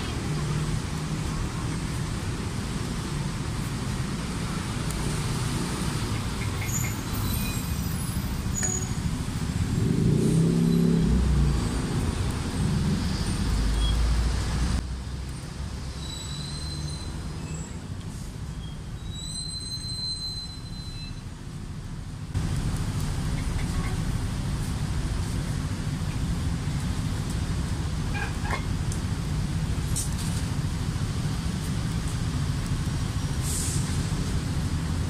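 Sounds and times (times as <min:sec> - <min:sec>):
rumble of passing vehicles: 0:00.0 - 0:35.0
brief high squeals: 0:16.0 - 0:17.8, 0:18.5 - 0:21.2.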